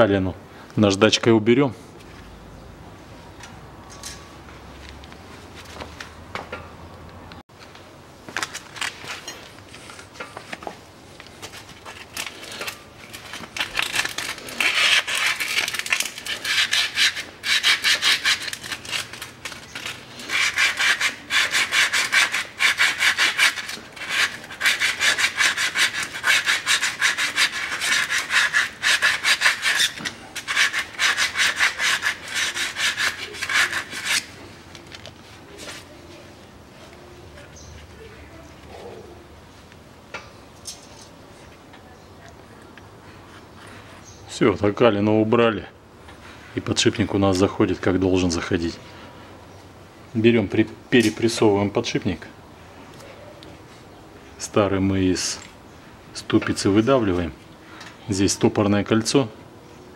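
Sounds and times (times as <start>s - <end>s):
sandpaper scraping metal: 11.8s - 34.5s.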